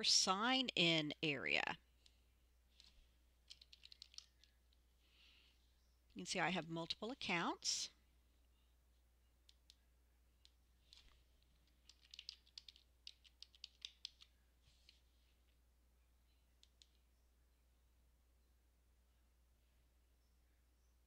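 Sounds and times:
keyboard typing: 2.8 - 4.8, 10.4 - 15.0, 16.6 - 17.0.

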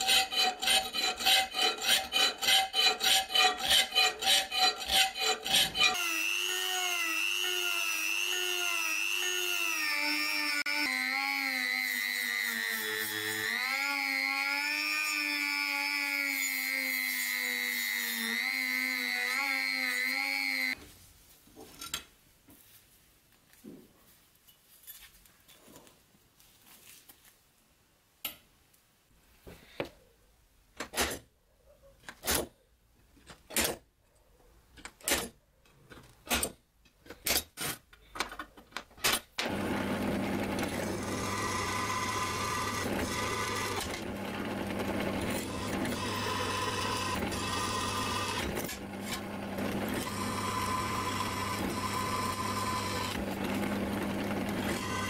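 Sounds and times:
drill bit squealing in steel: 0.0 - 10.6
drill press running: 39.4 - 55.0.

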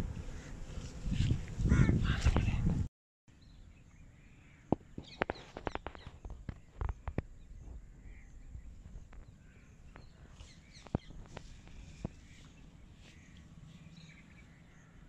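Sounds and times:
faint outdoor background: 0.0 - 15.0
birds chirping: 3.3 - 15.0.

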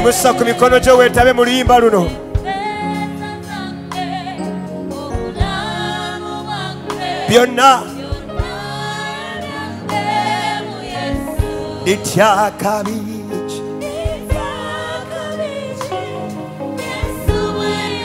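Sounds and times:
man singing into microphone: 0.0 - 2.2, 7.3 - 8.0, 11.8 - 13.8
backing vocalists singing: 0.0 - 18.0
instrumental accompaniment: 0.0 - 18.0.

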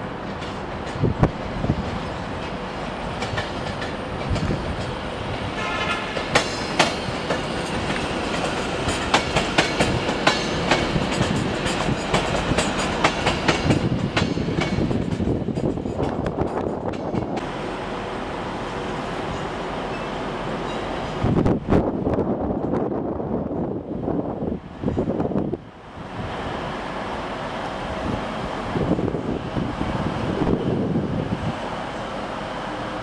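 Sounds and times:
train wheels clicking over rail joints: 0.3 - 17.5.

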